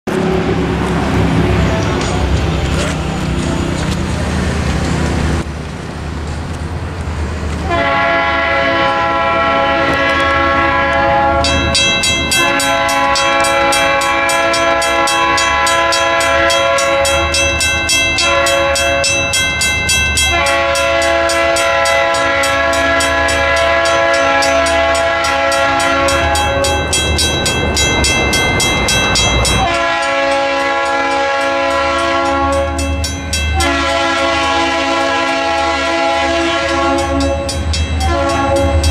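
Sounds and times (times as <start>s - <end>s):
locomotive air horn blasts: 7.6s - 17.5s, 18.2s - 19.2s, 20.2s - 27.0s, 29.5s - 38.9s
crossing bell ringing: 9.3s - 38.9s.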